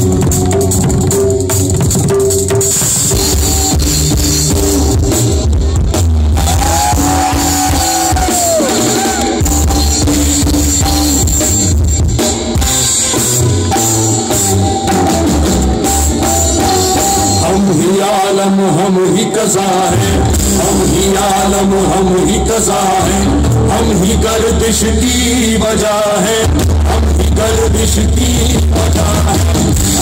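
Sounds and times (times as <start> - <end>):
live rock fusion band: 0.0 - 30.0.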